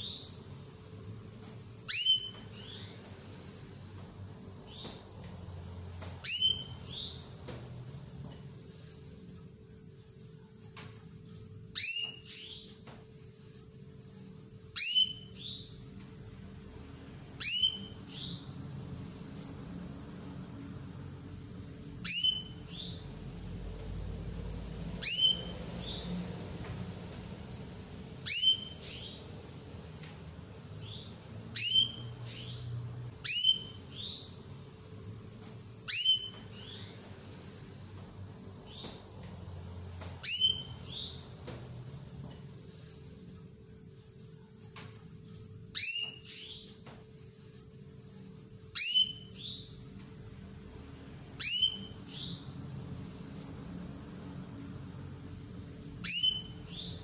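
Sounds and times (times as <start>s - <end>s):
canary call notes: 0.0s - 8.6s, 11.7s - 13.3s, 14.7s - 15.9s, 17.4s - 19.6s, 21.2s - 26.2s, 28.2s - 39.3s, 40.0s - 41.8s, 45.7s - 46.9s, 48.7s - 49.9s, 51.4s - 52.8s, 55.8s - 57.0s
high pulsing chirp: 0.0s - 26.2s, 28.1s - 57.0s.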